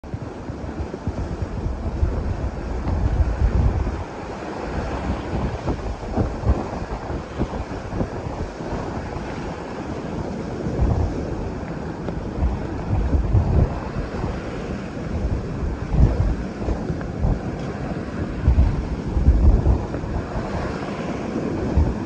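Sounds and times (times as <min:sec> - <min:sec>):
bow wave rushing and splashing: 0:00.0 - 0:22.0
wind buffeting microphone: 0:00.0 - 0:22.0.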